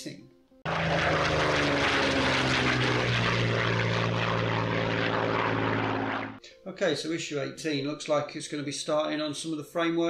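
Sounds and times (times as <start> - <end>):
propeller aircraft engine: 0.6 - 6.4.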